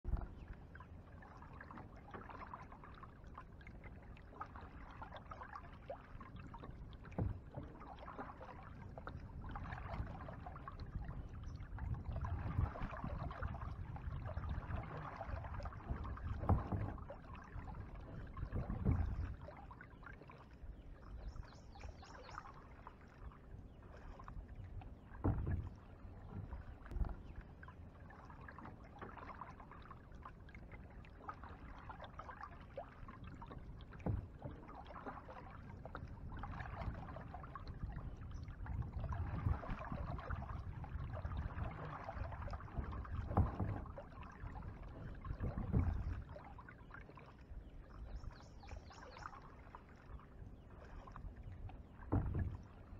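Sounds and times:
paddle splashing in water: 0.0 - 52.9
knocks against boat hull: 7.1 - 7.8, 15.8 - 17.1, 18.5 - 19.4, 25.2 - 25.7, 34.0 - 34.7, 42.7 - 44.0, 45.0 - 46.2, 52.1 - 52.6.

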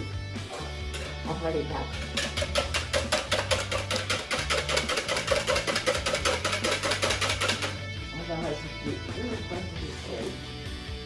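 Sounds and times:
whisk beating eggs in plastic bowl: 1.9 - 7.8.

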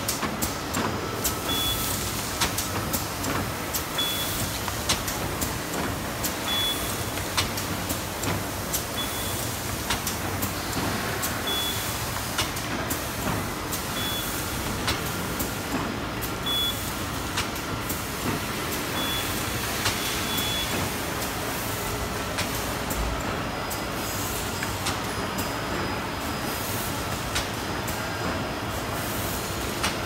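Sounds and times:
sharp mechanical clicks and knocks: 0.0 - 21.3, 22.3 - 23.3, 24.6 - 25.1, 27.1 - 27.6, 29.7 - 30.0.

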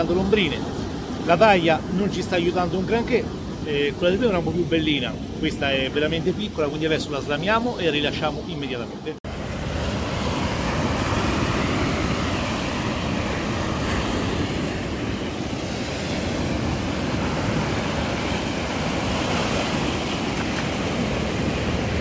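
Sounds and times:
surf breaking on beach: 9.3 - 22.0.

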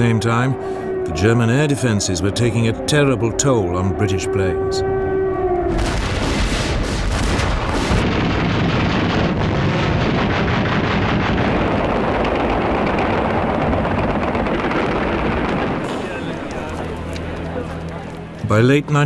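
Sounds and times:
sharp gunfire cracks: 5.8 - 12.7
rumble of gunfire and shell bursts: 5.8 - 16.0.

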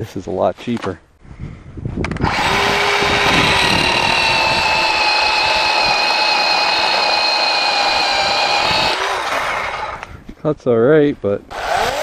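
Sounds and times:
electric chainsaw cutting log: 2.2 - 10.1, 11.5 - 12.0.

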